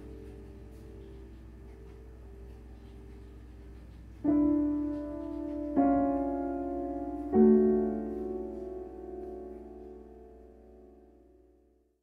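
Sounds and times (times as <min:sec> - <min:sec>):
piano chords: 0:00.0 - 0:11.9.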